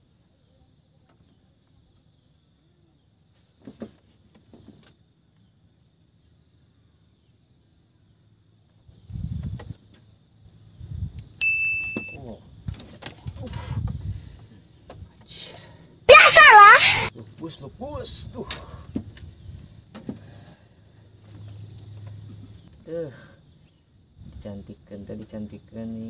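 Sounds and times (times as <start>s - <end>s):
faint insects chirping: 0.0s - 26.0s
short high beep: 11.4s - 12.2s.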